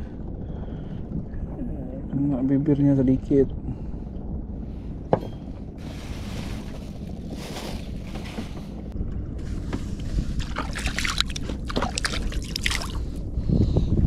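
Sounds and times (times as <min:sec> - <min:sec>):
wind: 0:00.0 - 0:14.0
water around boat: 0:03.6 - 0:14.0.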